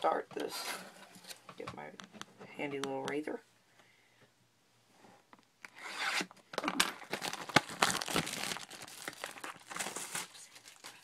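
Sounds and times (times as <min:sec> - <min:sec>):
wrapping tearing and rubbing: 0:07.0 - 0:11.0.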